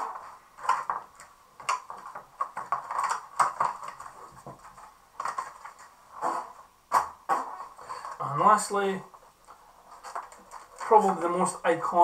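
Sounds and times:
plastic packaging crinkling: 0:00.0 - 0:06.5, 0:09.9 - 0:11.3.

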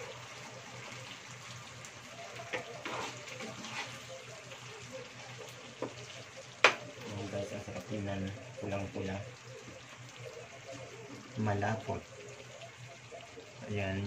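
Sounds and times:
sauce simmering and bubbling: 0:00.0 - 0:14.0
metal spatula scraping pan: 0:02.5 - 0:04.1.

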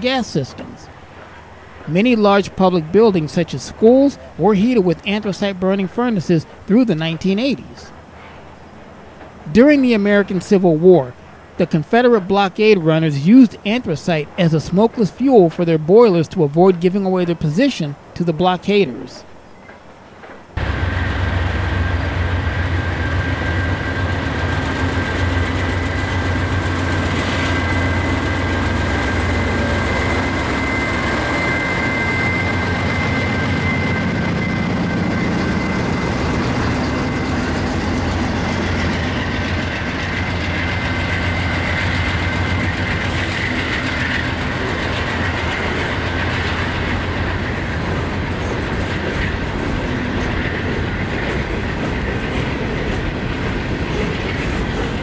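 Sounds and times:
diesel locomotive engine rumble: 0:00.0 - 0:15.9, 0:20.1 - 0:55.0
train wheels clattering over rails: 0:19.7 - 0:55.0
high whine: 0:20.5 - 0:55.0.

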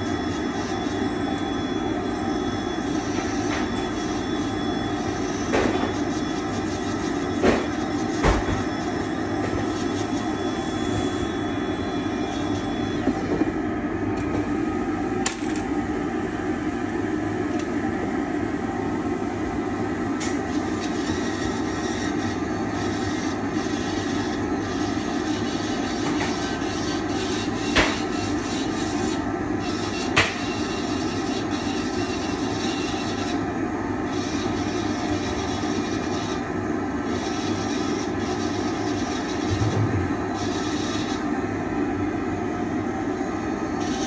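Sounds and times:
dust extraction hood running: 0:00.0 - 0:44.0.

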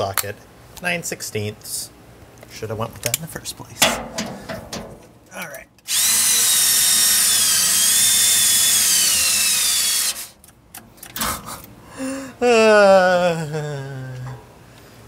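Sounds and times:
handling knocks: 0:03.8 - 0:05.1
cordless drill driving bolt: 0:05.9 - 0:10.3.

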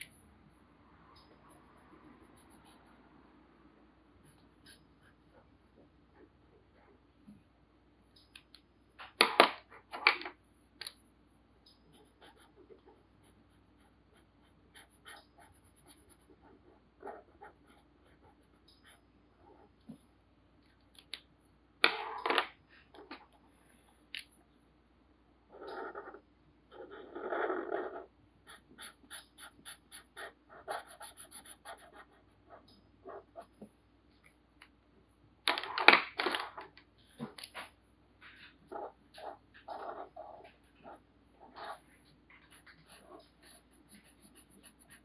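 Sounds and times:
marker scratching on paper: 0:11.8 - 0:19.7, 0:28.5 - 0:33.6, 0:38.7 - 0:45.0
marker rubbing on paper: 0:28.5 - 0:33.5, 0:42.4 - 0:45.0.

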